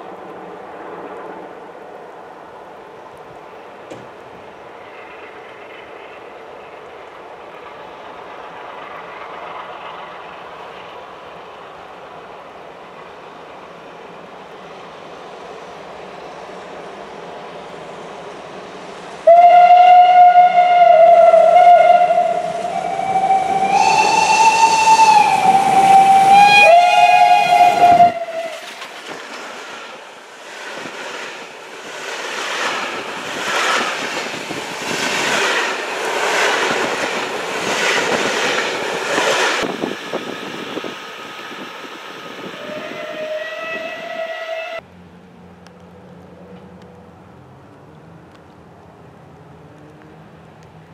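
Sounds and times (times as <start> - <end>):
steam train rushing past: 0.0 - 44.8
steam locomotive whistle: 19.2 - 28.8, 42.4 - 44.8.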